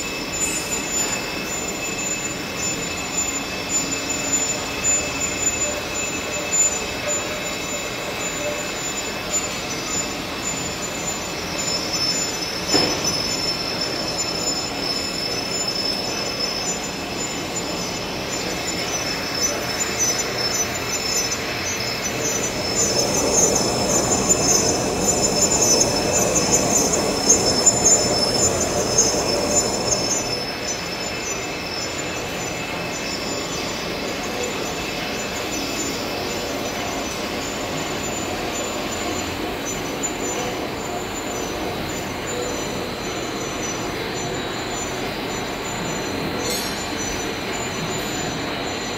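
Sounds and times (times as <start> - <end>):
high squeal: 0.0 - 48.9
lathe tool grinding steel: 13.3 - 31.8.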